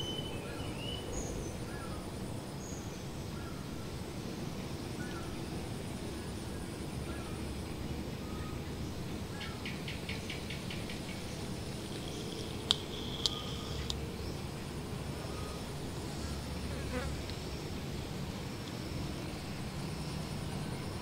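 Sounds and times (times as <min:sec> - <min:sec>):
insects chirping: 0:00.0 - 0:21.0
sharp clicks: 0:12.0 - 0:14.0.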